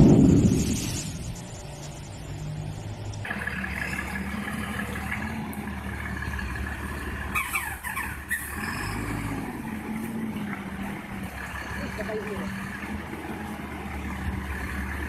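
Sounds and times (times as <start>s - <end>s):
truck diesel engine running: 0.0s - 15.0s
high squeaks: 3.5s - 11.6s.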